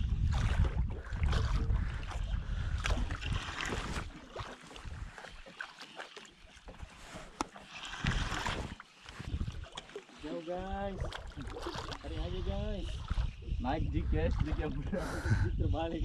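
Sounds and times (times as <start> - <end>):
wind rumbling on microphone: 0.0 - 5.4, 7.9 - 9.8, 10.5 - 16.0
water lapping around boat: 0.0 - 16.0.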